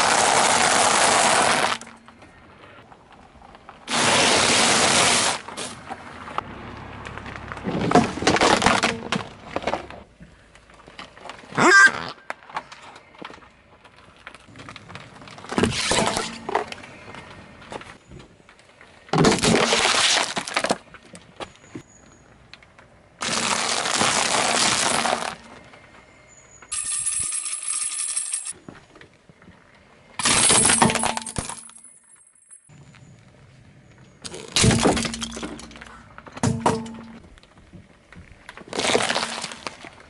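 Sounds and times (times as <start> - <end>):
car tyre rolling over objects: 0.0 - 11.5, 12.4 - 26.7, 32.7 - 40.0
plastic crackling and crunching: 19.2 - 21.2, 23.2 - 25.6, 38.4 - 40.0.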